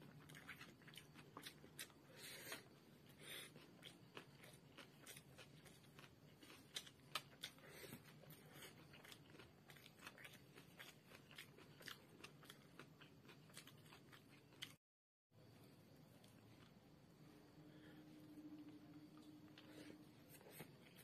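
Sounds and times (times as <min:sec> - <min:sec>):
person chewing: 0:00.0 - 0:14.8.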